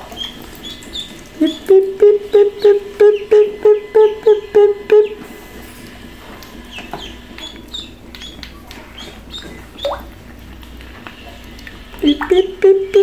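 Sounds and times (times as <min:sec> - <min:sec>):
ducklings peeping: 0:00.0 - 0:05.2, 0:06.6 - 0:10.1, 0:11.9 - 0:13.0.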